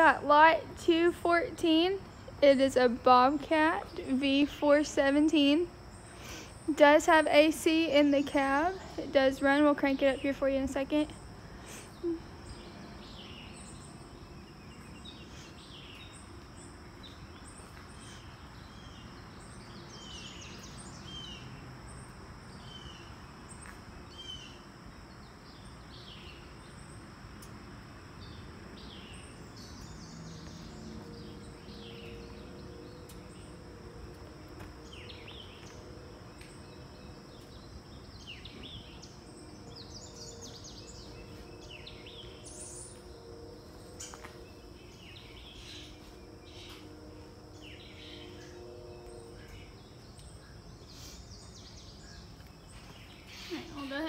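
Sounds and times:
steady background hiss: 0.0 - 54.0
birds chirping: 34.8 - 54.0.

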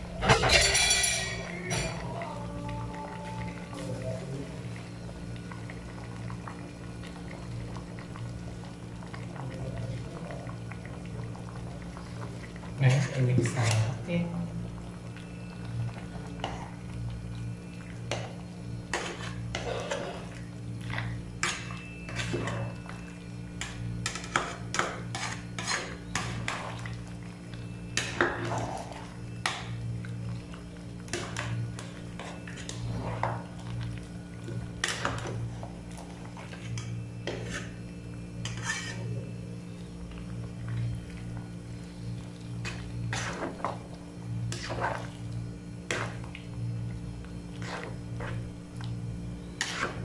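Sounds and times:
low hum: 0.0 - 50.0
thick stew being stirred: 23.6 - 27.3, 27.9 - 39.4, 40.1 - 50.0
utensil scraping metal pot: 38.4 - 39.1.

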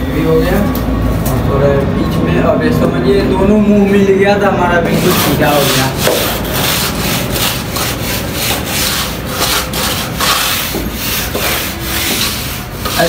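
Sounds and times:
hand float scraping plaster: 4.9 - 13.0.

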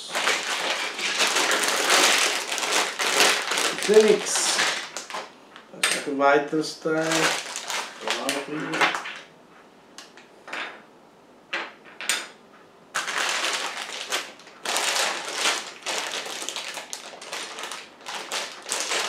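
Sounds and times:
plastic bags crinkling: 0.0 - 5.3, 6.9 - 9.3, 12.9 - 19.0.

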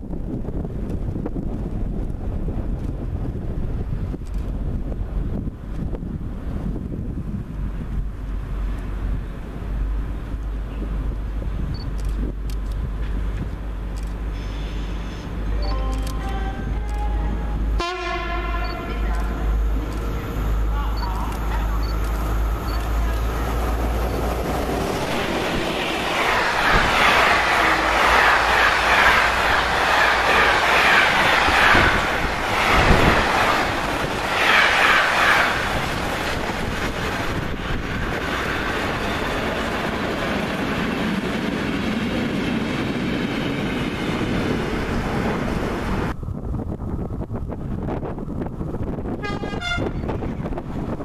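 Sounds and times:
train rumble: 0.0 - 51.0
freight train wheels clickety-clack: 0.1 - 6.0, 18.0 - 46.1.

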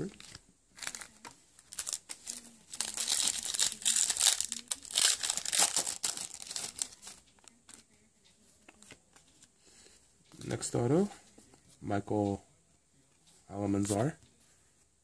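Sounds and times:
foil wrapper tearing and crinkling: 1.7 - 6.9.

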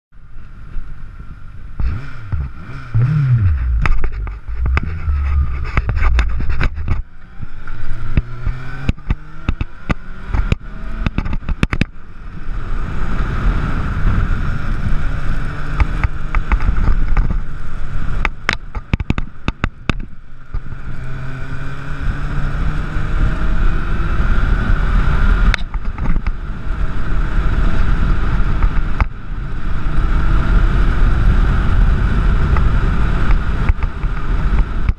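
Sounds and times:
motorcycle engine accelerating: 0.4 - 34.9
short clicks and crackles: 3.4 - 7.1.

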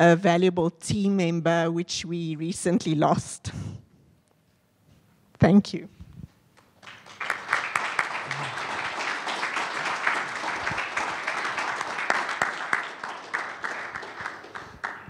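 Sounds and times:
audience applauding: 6.8 - 15.0.

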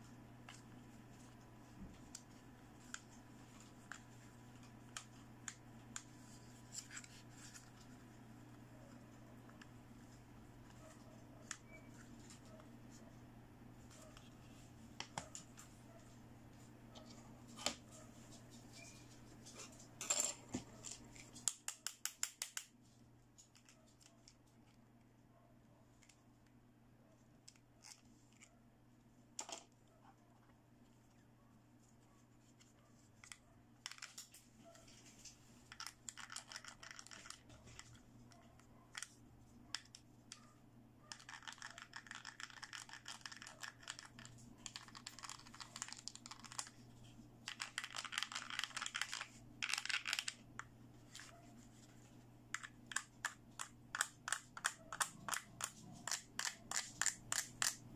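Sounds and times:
faint low hum: 0.0 - 21.5, 22.8 - 57.9
plastic toy clicks: 52.6 - 57.8.

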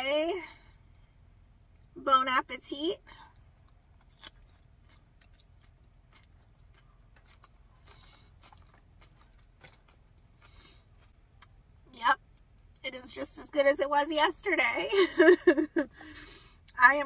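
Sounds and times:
soft chewing: 3.2 - 12.8.

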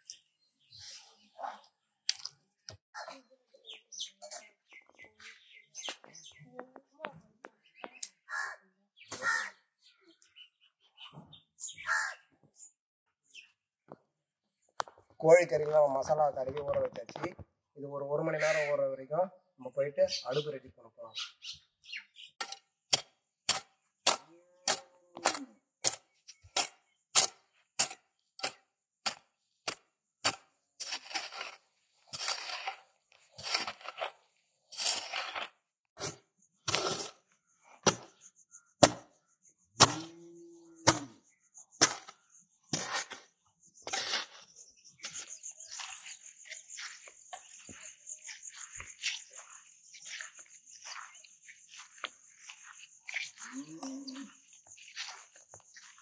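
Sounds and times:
hoe chopping dry soil: 22.4 - 38.2, 38.8 - 39.2, 39.8 - 40.2, 40.8 - 41.2, 41.8 - 46.1
scraping scoops of earth: 22.5 - 39.2, 40.8 - 56.0.

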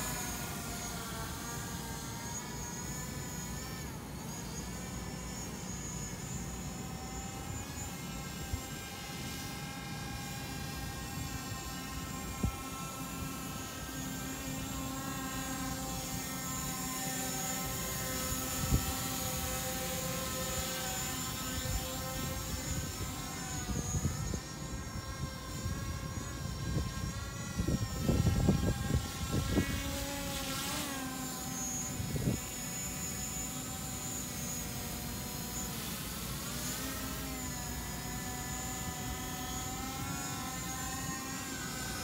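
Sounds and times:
drone propellers whining: 0.0 - 42.0
wind buffeting microphone: 22.7 - 30.0.

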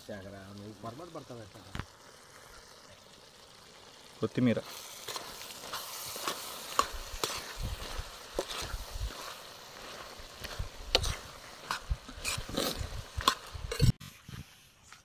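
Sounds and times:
food sizzling in a pan: 0.0 - 14.0
ladle scraping iron pan: 5.0 - 14.1.

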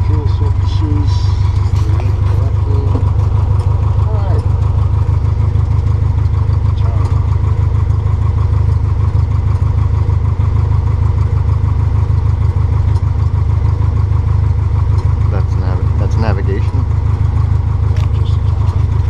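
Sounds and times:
aircraft engine droning: 0.0 - 11.8.

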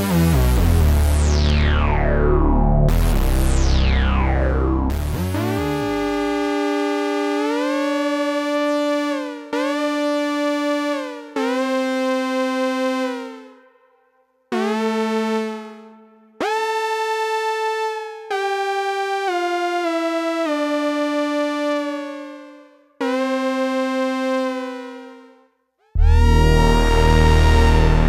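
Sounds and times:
analog synthesizer held notes: 0.0 - 19.2, 26.0 - 28.0.

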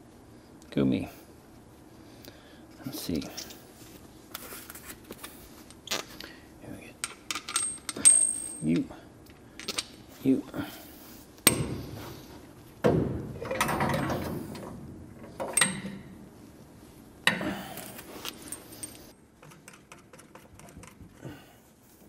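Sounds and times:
metal tools clattering: 18.3 - 19.1.

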